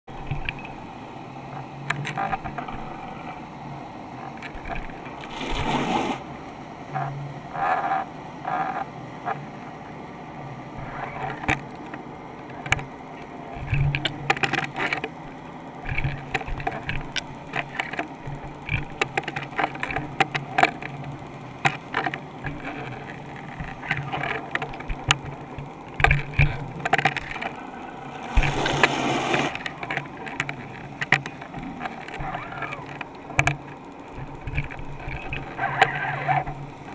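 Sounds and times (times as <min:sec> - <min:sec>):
low steady hum: 0:00.1 - 0:36.9
underwater knocking and clicking: 0:10.8 - 0:15.2, 0:15.8 - 0:36.9.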